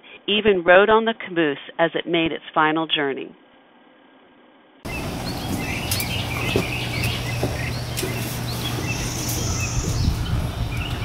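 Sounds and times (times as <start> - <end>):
birds chirping: 4.9 - 11.0
low hum: 4.9 - 11.0.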